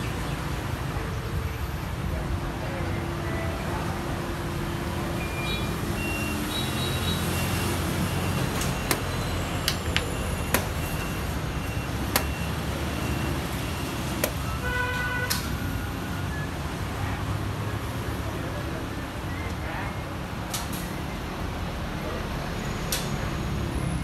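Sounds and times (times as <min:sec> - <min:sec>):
street traffic rumble: 0:00.0 - 0:24.0
chess clock buttons pressed: 0:08.8 - 0:10.8, 0:12.1 - 0:12.4, 0:14.2 - 0:14.4.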